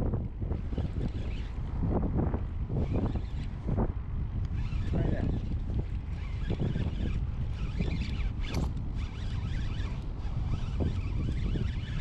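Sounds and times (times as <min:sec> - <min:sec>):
wind rumbling on microphone: 0:00.0 - 0:12.0
rasping and crackling: 0:04.4 - 0:12.0.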